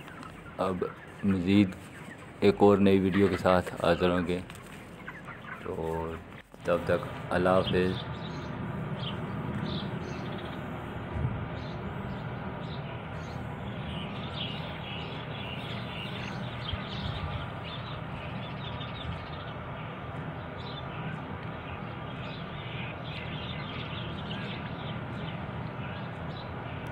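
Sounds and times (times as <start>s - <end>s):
chickens peeping and chirping: 0.0s - 26.9s
steady low rumble: 6.1s - 26.9s.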